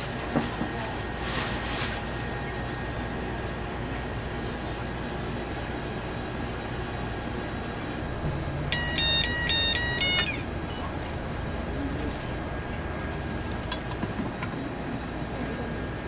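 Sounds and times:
steady background hum: 0:00.0 - 0:16.0
timer beeping a short tune: 0:08.8 - 0:10.4.

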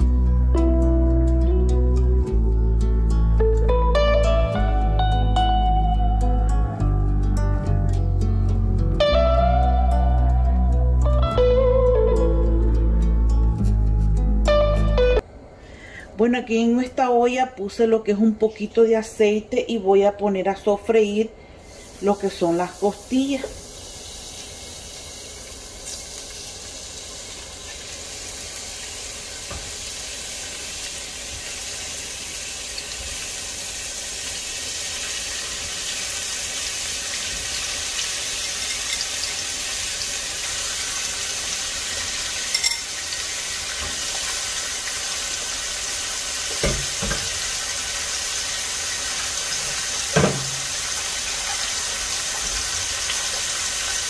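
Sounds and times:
meat sizzling in hot oil: 0:21.6 - 0:54.0
knocks in a pot: 0:46.5 - 0:47.4, 0:50.1 - 0:50.7.

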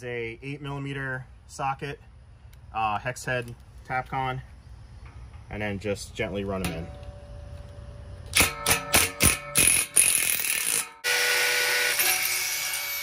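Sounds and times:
drill grinding into concrete: 0:09.6 - 0:13.0.

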